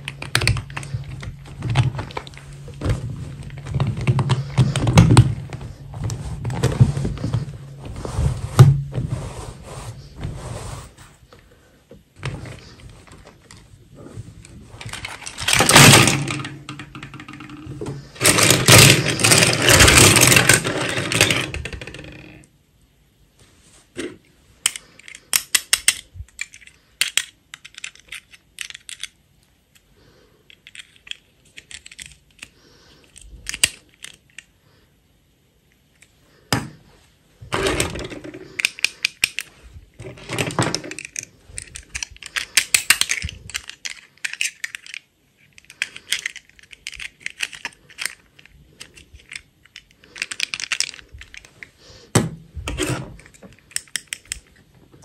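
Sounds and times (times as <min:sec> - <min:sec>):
plastic clicks and clatters: 0:00.0 - 0:05.6, 0:14.4 - 0:22.5, 0:24.0 - 0:29.9, 0:30.5 - 0:34.5, 0:37.5 - 0:51.7, 0:52.7 - 0:55.0.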